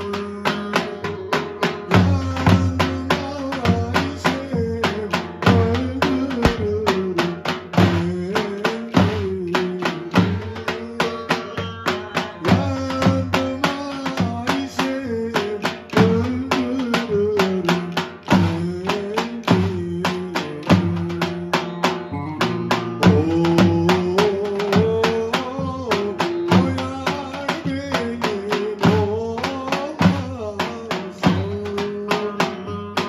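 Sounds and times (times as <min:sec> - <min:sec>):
bass drums pounding: 0:00.1 - 0:32.1
wavering melody line: 0:22.1 - 0:23.0.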